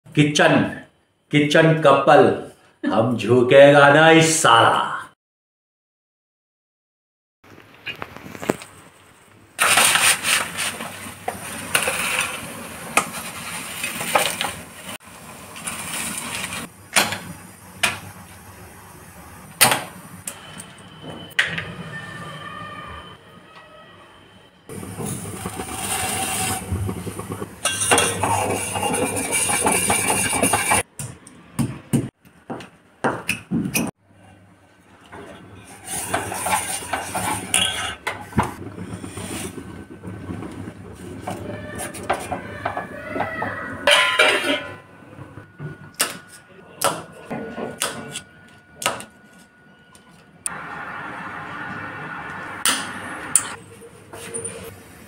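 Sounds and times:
metal spoon scraping a pan: 0:09.6 - 0:14.6, 0:27.6 - 0:30.8, 0:35.6 - 0:38.2.

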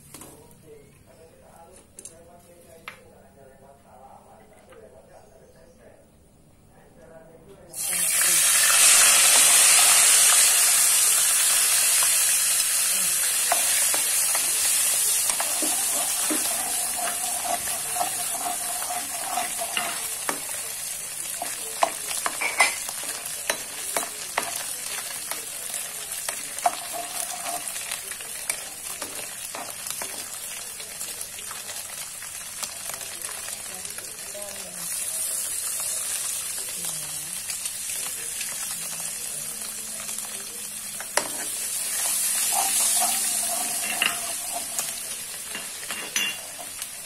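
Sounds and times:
fish sizzling in hot oil: 0:07.8 - 0:47.0
spatula clicking and scraping: 0:13.4 - 0:20.7, 0:21.3 - 0:25.0, 0:26.2 - 0:30.3, 0:41.0 - 0:46.7.

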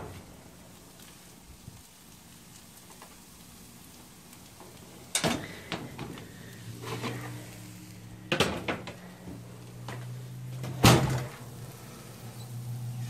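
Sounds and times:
oven door knocking shut: 0:08.3 - 0:08.9, 0:10.7 - 0:11.4.

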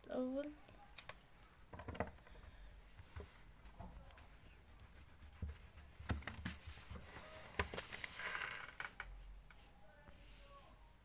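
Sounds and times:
eraser rubbing on paper: 0:03.6 - 0:07.5.

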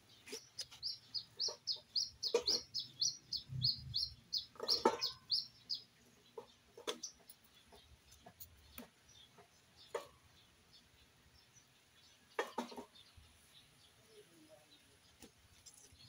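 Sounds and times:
chickens clucking: 0:00.0 - 0:10.5, 0:12.3 - 0:13.2
chicks chirping: 0:00.0 - 0:13.7.

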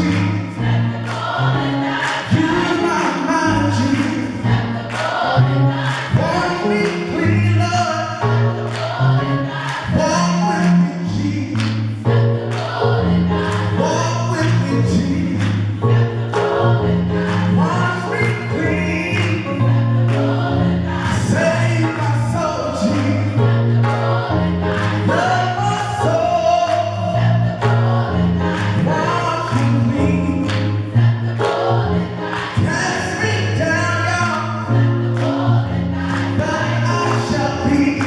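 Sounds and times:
gospel choir singing: 0:00.0 - 0:38.0
keyboard bass notes: 0:00.0 - 0:38.0
rhythmic hand clapping: 0:00.0 - 0:38.0.

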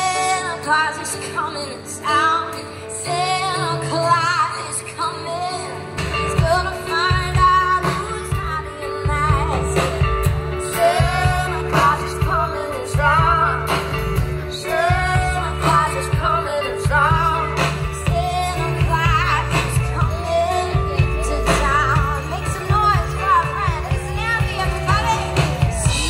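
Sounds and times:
band music through a pa: 0:00.0 - 0:26.0
person singing: 0:00.0 - 0:26.0
bass and drums: 0:05.9 - 0:26.0.

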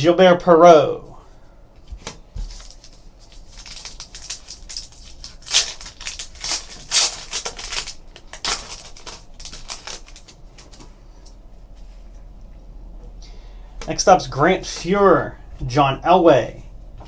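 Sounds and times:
card pack wrapper crinkling: 0:02.4 - 0:10.9.

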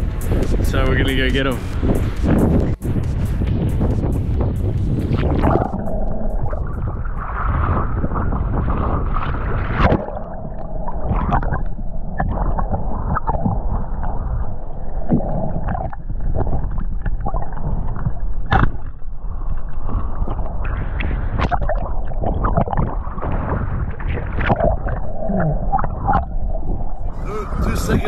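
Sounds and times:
underwater rush and gurgling: 0:00.0 - 0:28.0
sharp underwater knocks: 0:09.7 - 0:10.2, 0:15.1 - 0:19.0.

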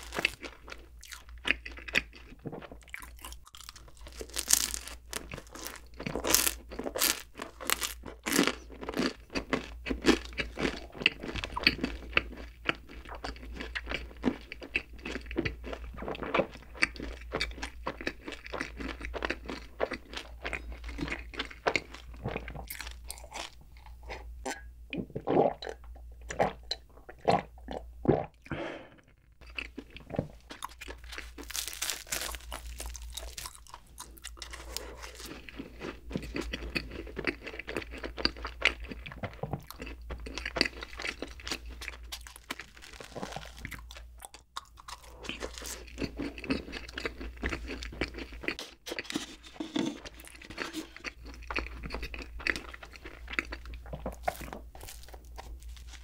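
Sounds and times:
chewing and biting soft food: 0:00.0 - 0:56.0
person gulping milk: 0:45.0 - 0:55.7.

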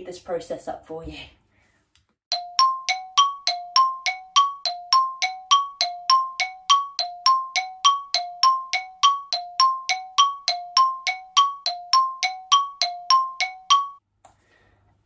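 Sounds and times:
bell-like dings music: 0:02.3 - 0:14.0.

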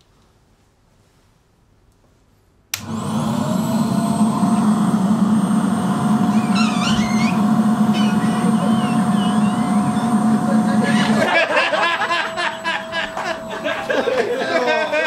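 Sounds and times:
air rushing through pipe: 0:02.8 - 0:14.3
vacuum cleaner motor whine: 0:02.8 - 0:15.0
high-pitched squeal: 0:03.0 - 0:15.0.

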